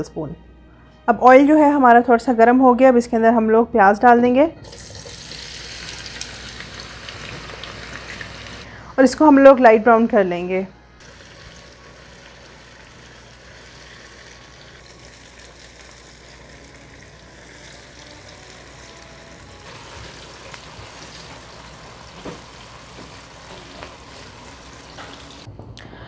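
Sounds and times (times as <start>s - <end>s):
onions sizzling in hot oil: 4.7s - 8.6s, 11.0s - 25.5s.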